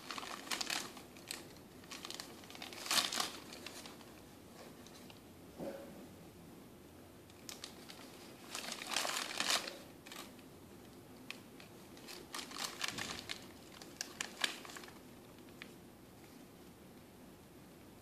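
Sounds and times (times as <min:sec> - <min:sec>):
paper pages crinkling: 0:00.0 - 0:05.2, 0:07.4 - 0:10.4, 0:11.3 - 0:15.8.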